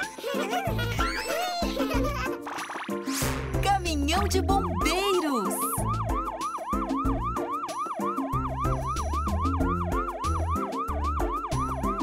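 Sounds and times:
children's music with bass line: 0.0s - 12.0s
cartoon siren yelping: 4.5s - 12.0s.

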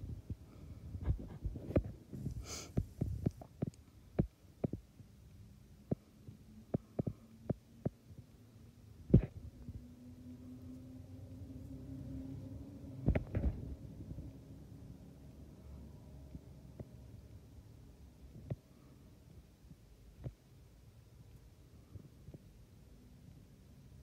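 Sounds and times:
faint steady hum: 0.0s - 24.0s
soft dull knocks and bumps: 1.0s - 4.9s, 9.1s - 9.8s, 13.0s - 13.8s.

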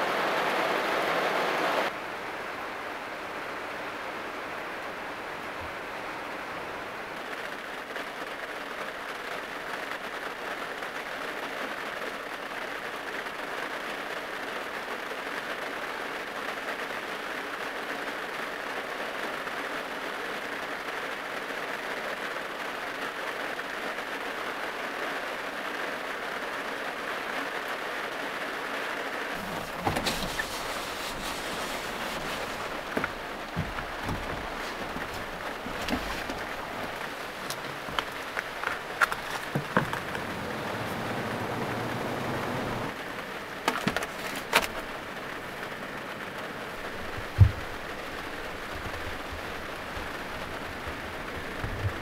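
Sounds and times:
heavy rain on van roof: 0.0s - 52.0s
knocks and thumps inside van: 29.4s - 42.9s, 43.6s - 45.6s, 46.6s - 52.0s.

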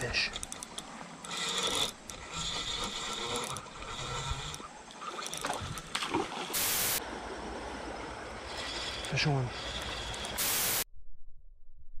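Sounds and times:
fishing reel gears whirring: 0.0s - 7.0s, 8.0s - 10.8s
loud hiss: 6.5s - 7.0s, 10.4s - 10.8s.

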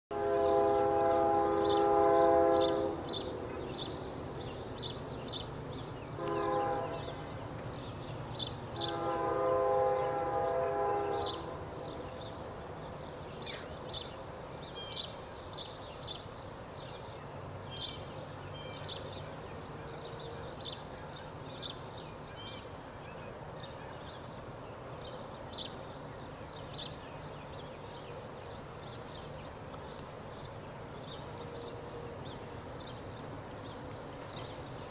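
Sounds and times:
distant locomotive air horn: 0.1s - 3.4s, 6.1s - 7.4s, 8.7s - 12.3s, 31.1s - 32.4s
low rumble of train: 0.1s - 34.9s
birds chirping: 0.2s - 34.9s.

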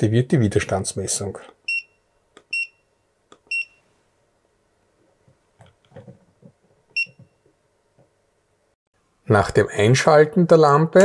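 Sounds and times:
voltage tester beeps: 1.7s - 2.9s, 3.5s - 3.8s.

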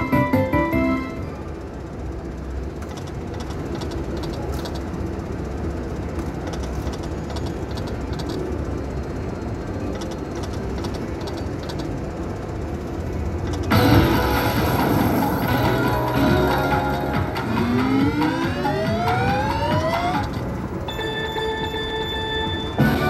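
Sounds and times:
slot machine reels ticking: 0.0s - 23.0s
casino slot floor din: 13.5s - 23.0s.

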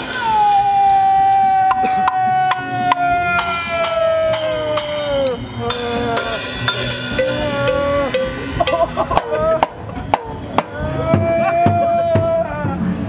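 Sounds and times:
person shouting: 0.0s - 6.6s, 7.2s - 8.3s, 10.6s - 13.0s
drums and buckets struck: 0.0s - 13.0s.

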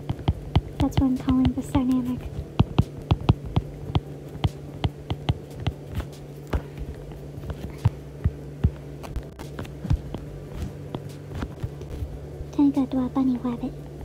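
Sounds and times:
low electrical hum: 0.0s - 14.0s
stylus tapping on glass screen: 2.6s - 5.8s.

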